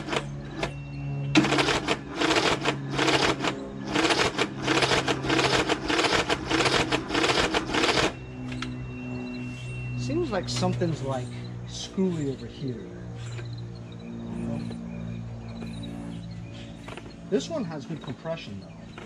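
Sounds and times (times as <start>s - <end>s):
starter cranking engine: 1.4s - 8.2s.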